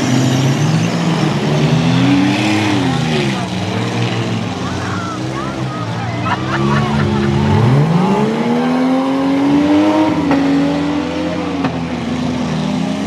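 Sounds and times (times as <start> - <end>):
car engine revving hard: 0.0 - 13.0.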